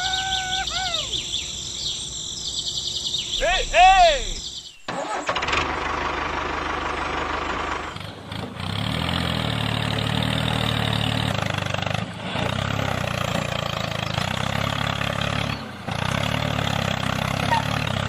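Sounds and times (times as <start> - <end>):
engine running steadily: 3.7 - 18.0.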